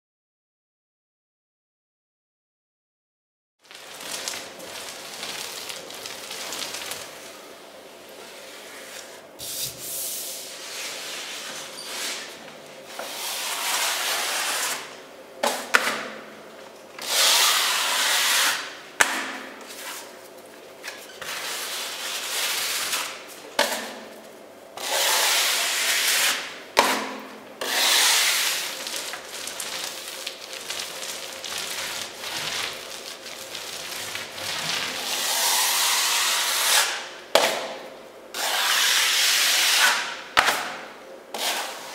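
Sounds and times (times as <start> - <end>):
filler knife scraping wall: 8.2 - 15.0, 24.8 - 29.8, 31.6 - 37.1, 38.3 - 40.6, 41.3 - 41.9.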